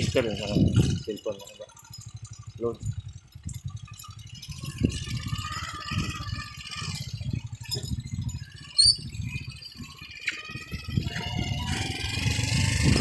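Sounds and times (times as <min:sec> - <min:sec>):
small motorcycle engine: 0:00.0 - 0:13.0
sharp high squeak: 0:04.5 - 0:12.0.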